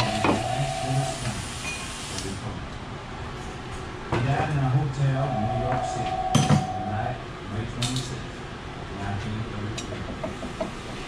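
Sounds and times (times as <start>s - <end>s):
steady tone: 0.0s - 1.4s, 5.0s - 7.5s.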